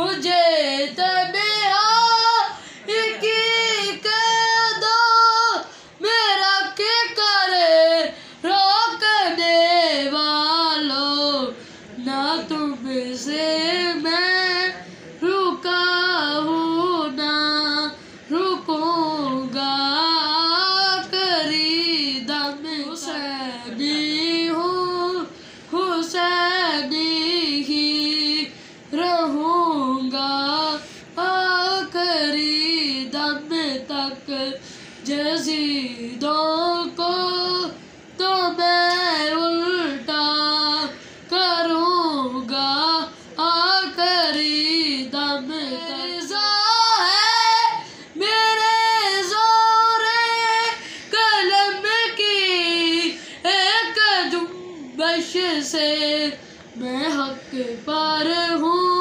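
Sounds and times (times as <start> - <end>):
boy singing unaccompanied: 0.0 - 59.0
singer breathing: 2.6 - 2.9, 5.7 - 6.0, 8.2 - 8.4, 11.6 - 12.0, 25.3 - 25.7, 34.6 - 35.0, 47.8 - 48.2, 50.8 - 51.2, 53.1 - 53.4.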